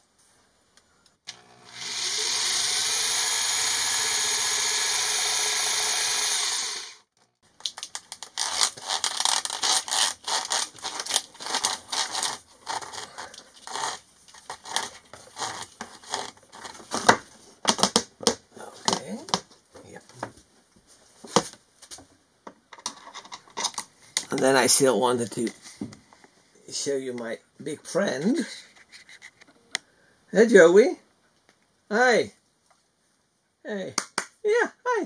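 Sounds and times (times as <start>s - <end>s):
cordless drill boring through wood: 1.3s - 7.2s, 11.4s - 14.0s.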